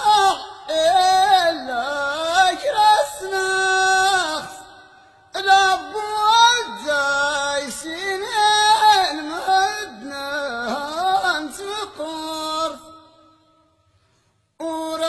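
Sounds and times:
person singing unaccompanied: 0.0 - 4.7, 5.4 - 12.9, 14.6 - 15.0.

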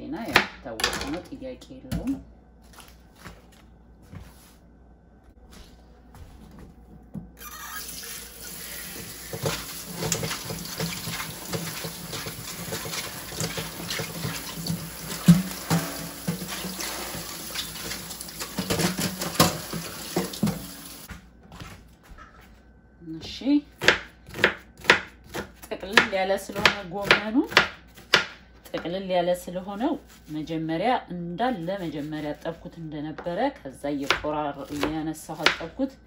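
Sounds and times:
tap running into sink: 9.0 - 20.9
colander clattering against sink: 9.3 - 20.7.

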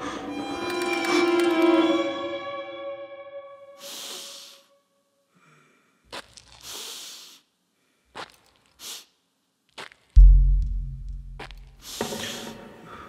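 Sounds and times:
breathy hissing exhalations: 3.8 - 4.7, 6.6 - 7.6, 11.8 - 13.0.

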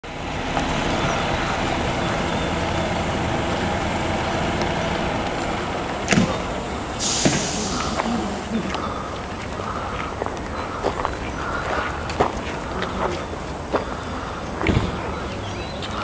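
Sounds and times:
road train engine running: 0.0 - 16.0
wheels on gravel path: 0.1 - 16.0.

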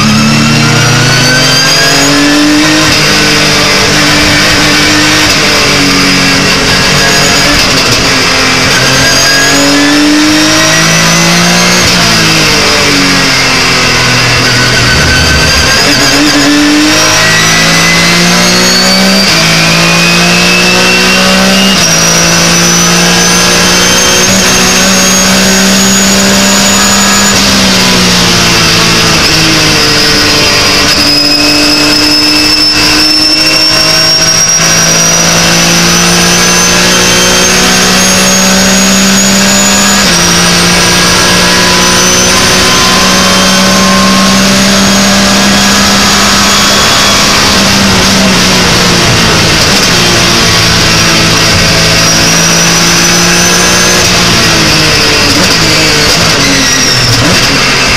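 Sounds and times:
racing engine accelerating: 0.0 - 57.9.

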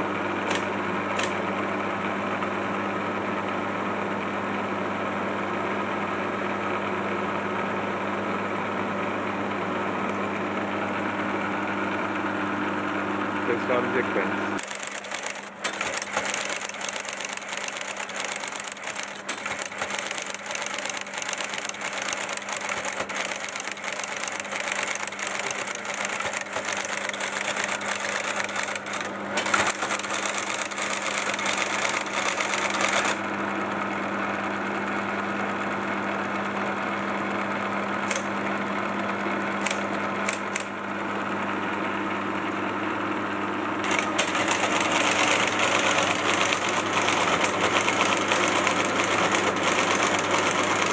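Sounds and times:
machine hum: 8.5 - 50.9
typewriter clatter: 14.6 - 33.2, 43.9 - 50.9.

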